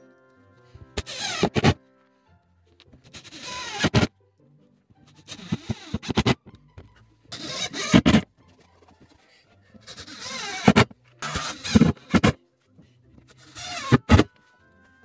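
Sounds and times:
faint background music: 0.0 - 15.0
rasping scraping strokes: 3.1 - 4.1, 7.3 - 8.3, 9.8 - 12.4.

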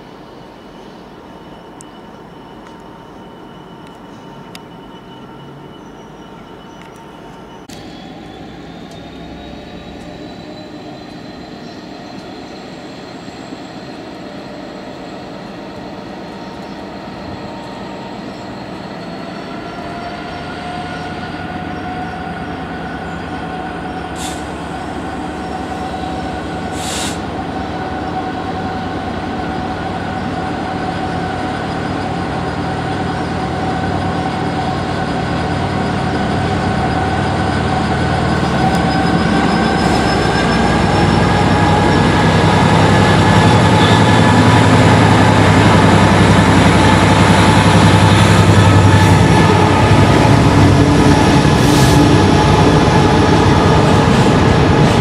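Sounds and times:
diesel locomotive engine working hard: 0.0 - 55.0
steady engine whine: 0.1 - 55.0
short hisses: 26.7 - 27.2.

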